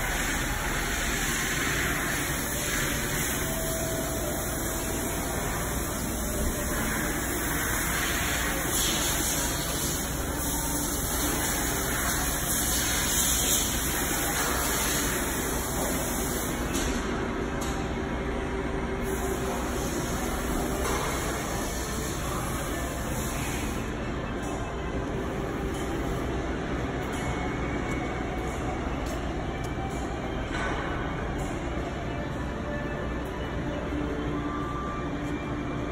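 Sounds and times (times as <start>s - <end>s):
hydraulic power unit hissing: 0.0s - 16.8s, 19.0s - 24.0s.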